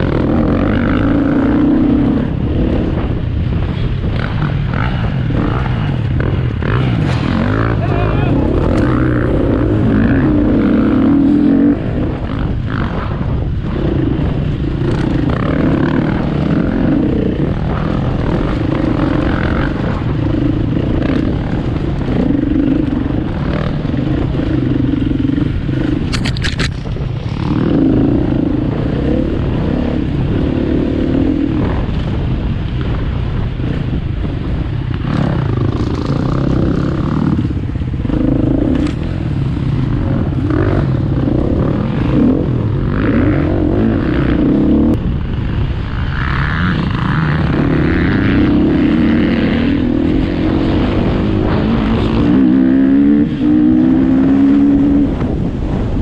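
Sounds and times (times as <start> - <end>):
motorcycle engine revving: 0.0 - 56.0
sharp clatter: 26.0 - 27.5.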